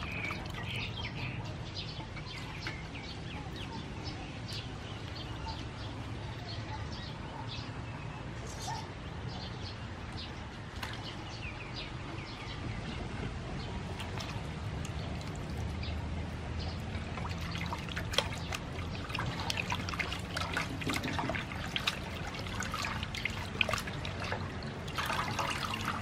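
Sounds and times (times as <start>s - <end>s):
small birds chirping: 0.0s - 26.0s
hands squelching octopus in water: 16.7s - 26.0s.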